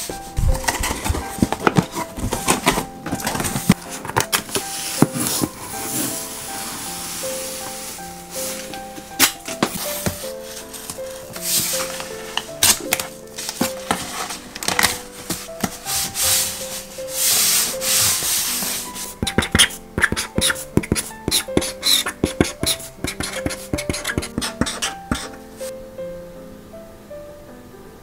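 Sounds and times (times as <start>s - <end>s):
hands rubbing tape on cardboard: 15.3s - 25.4s
marker scratching on cardboard: 17.2s - 25.4s.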